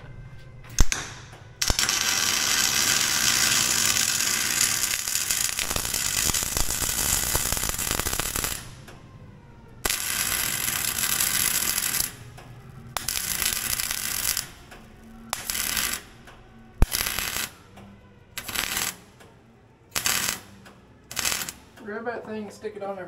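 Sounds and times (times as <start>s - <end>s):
welding arc crackling and hissing: 1.6s - 8.9s, 9.8s - 12.3s, 12.9s - 16.2s, 16.8s - 17.6s, 18.4s - 19.1s, 19.9s - 20.5s, 21.1s - 21.7s.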